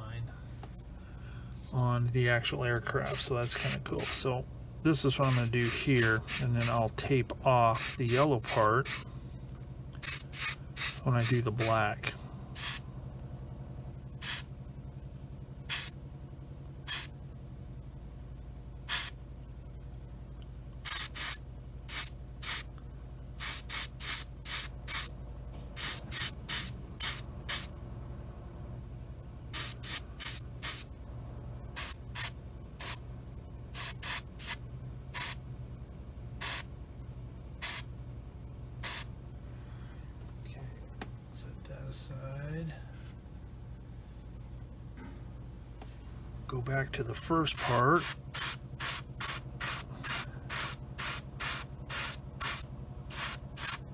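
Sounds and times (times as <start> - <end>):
steady low hum: 0.0 - 53.9
airbrush spraying hiss: 3.1 - 4.3, 5.2 - 6.8, 7.8 - 9.1, 10.0 - 11.4, 12.6 - 12.8, 14.2 - 14.5, 15.7 - 15.9, 16.9 - 17.1, 18.9 - 19.2, 20.8 - 22.7, 23.4 - 25.1, 25.8 - 27.7, 29.6 - 30.9, 31.8 - 33.0, 33.8 - 34.6, 35.2 - 35.4, 36.4 - 36.7, 37.6 - 37.9, 38.8 - 39.1, 47.6 - 53.8.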